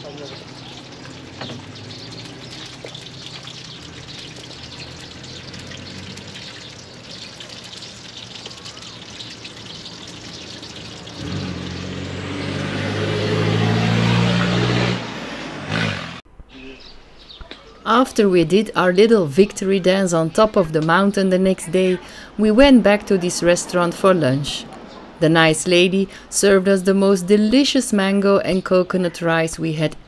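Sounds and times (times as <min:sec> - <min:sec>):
vehicle engine passing by: 0:00.0 - 0:16.2
faint bird chirps: 0:08.4 - 0:10.8, 0:16.5 - 0:17.9.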